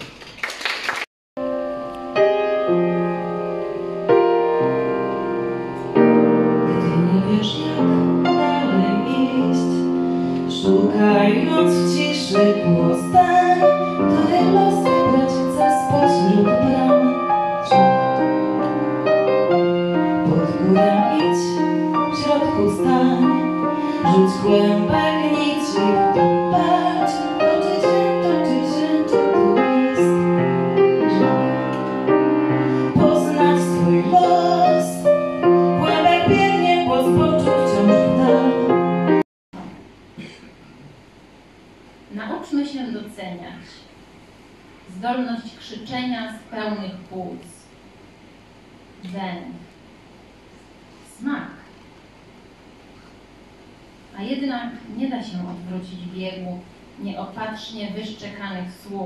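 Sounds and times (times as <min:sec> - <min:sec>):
grand piano: 0:01.4 - 0:40.8
woman singing: 0:06.7 - 0:18.2, 0:20.2 - 0:30.3, 0:32.8 - 0:38.8.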